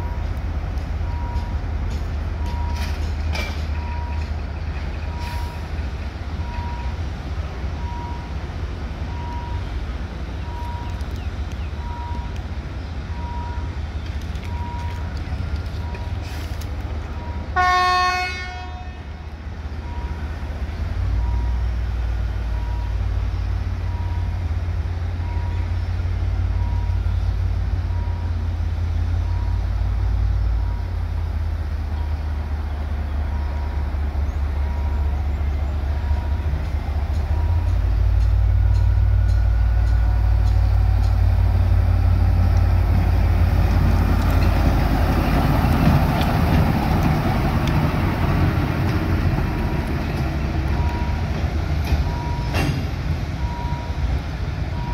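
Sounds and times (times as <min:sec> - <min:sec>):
diesel engine rumbling: 0:00.0 - 0:54.9
locomotive horn blast: 0:17.5 - 0:19.1.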